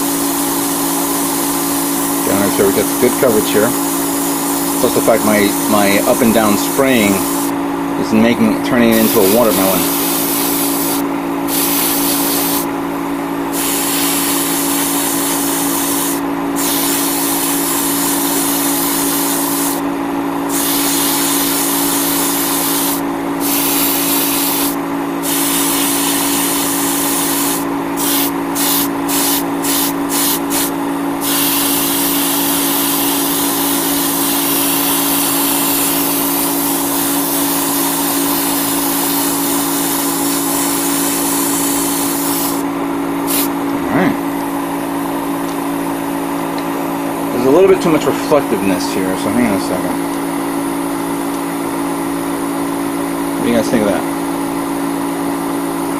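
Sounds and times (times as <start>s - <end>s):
airbrush hissing: 0.0s - 7.6s, 8.8s - 12.8s, 13.5s - 43.6s
steady low hum: 0.0s - 55.3s.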